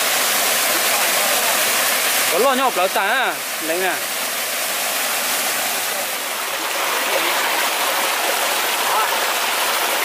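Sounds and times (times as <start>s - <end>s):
stream rushing over stones: 0.0s - 10.0s.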